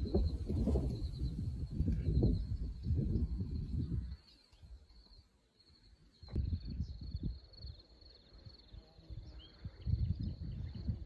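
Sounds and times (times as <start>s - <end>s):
wind buffeting microphone: 0.0s - 4.2s, 6.2s - 7.7s, 9.1s - 11.0s.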